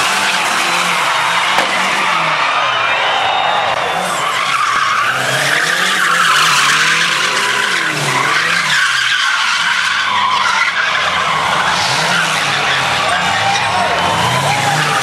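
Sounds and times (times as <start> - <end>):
car engines revving: 0.0 - 15.0
tyres screeching: 3.9 - 15.0.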